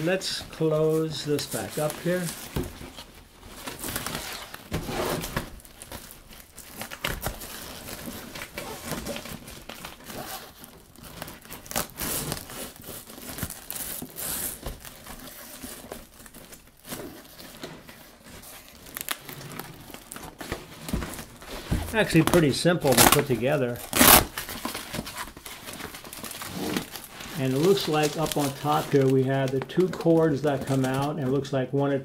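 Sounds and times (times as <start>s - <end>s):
fabric crinkling and rustling: 0.0s - 31.9s
velcro ripping: 3.8s - 17.2s, 21.9s - 29.2s.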